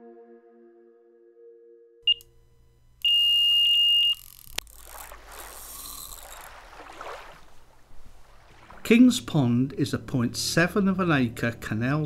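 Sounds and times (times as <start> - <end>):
music tones: 0.0 - 2.3
electronic bite alarm beeping: 2.0 - 2.3, 3.0 - 4.6
click: 4.2 - 4.7.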